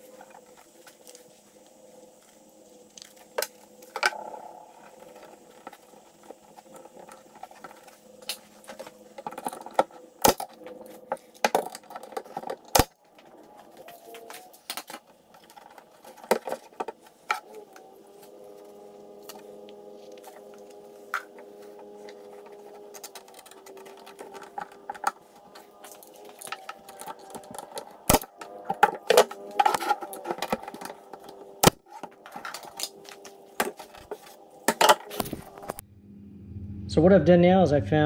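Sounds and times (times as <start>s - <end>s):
clamps and boards clicking and knocking: 4.9s - 17.8s, 21.2s - 35.8s.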